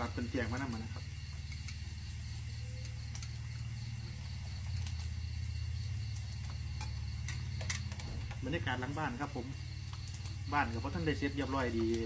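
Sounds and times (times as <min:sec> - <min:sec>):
insect trill: 0:00.0 - 0:12.0
utensils clicking on grill pan: 0:06.1 - 0:08.1.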